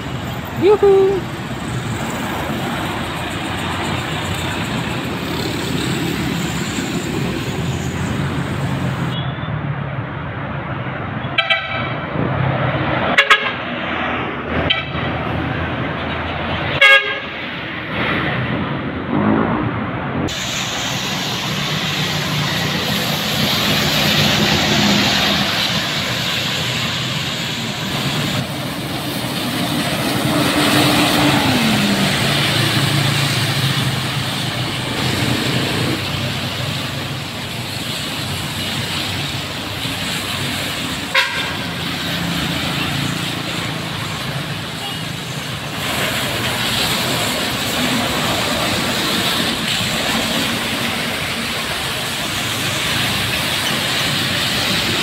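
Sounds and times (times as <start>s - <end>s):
buses passing on road: 0.0s - 55.0s
bus horn toots: 11.3s - 12.0s, 13.1s - 13.6s, 14.6s - 15.1s, 16.8s - 17.4s, 41.1s - 41.7s.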